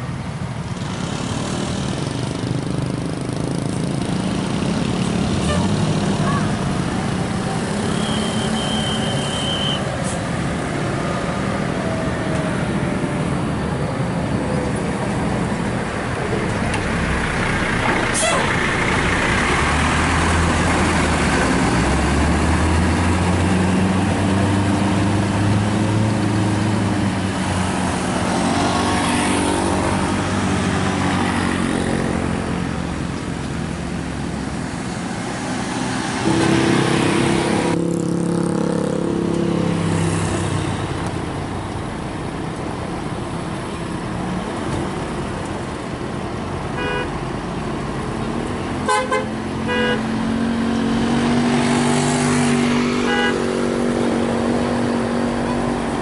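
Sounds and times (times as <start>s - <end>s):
bus diesel engine pulling away: 0.3s - 38.3s
multi-tone vehicle horn: 5.4s - 6.5s, 7.8s - 9.9s, 46.8s - 47.2s, 48.8s - 50.1s, 53.0s - 53.5s
short horn beeps: 7.9s - 9.9s.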